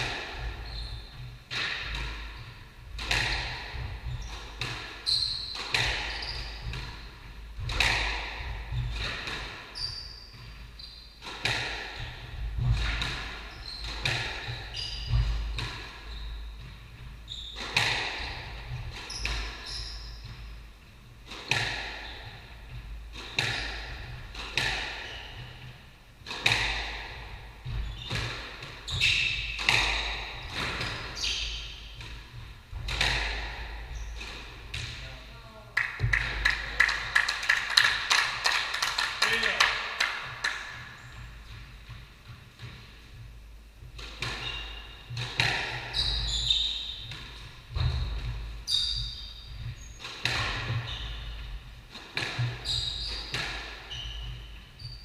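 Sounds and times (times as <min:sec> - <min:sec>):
shoe squeaks on wooden floor: 0:00.6 - 0:01.4, 0:05.0 - 0:07.1, 0:09.7 - 0:11.2, 0:13.4 - 0:17.7, 0:18.3 - 0:20.6, 0:25.0 - 0:25.8, 0:27.7 - 0:32.0, 0:44.4 - 0:45.2, 0:45.8 - 0:47.1, 0:47.8 - 0:51.6, 0:52.4 - 0:55.0
squash ball echoing cracks: 0:01.5 - 0:09.8, 0:11.2 - 0:16.0, 0:23.0 - 0:25.1, 0:26.2 - 0:42.9, 0:45.1 - 0:46.0, 0:46.8 - 0:54.6.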